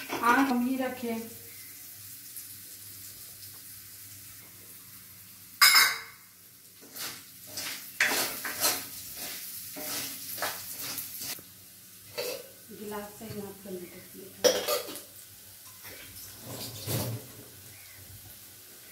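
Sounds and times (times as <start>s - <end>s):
rice sizzling in a pan: 0.0s - 18.9s
spatula scraping a metal pan: 6.8s - 11.4s.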